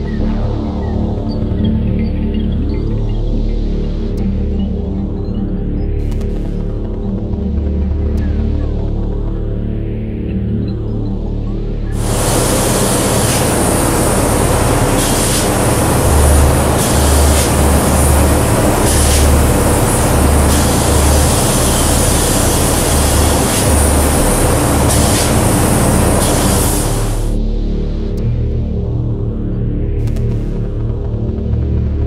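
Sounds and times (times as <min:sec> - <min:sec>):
spray gun hissing: 0:12.0 - 0:27.4.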